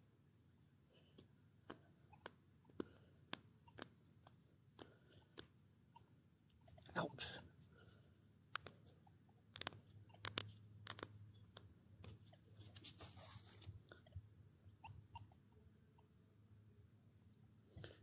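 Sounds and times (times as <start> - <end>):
faint high-pitched whine: 0.0 - 18.0
brief rustle: 12.6 - 13.8.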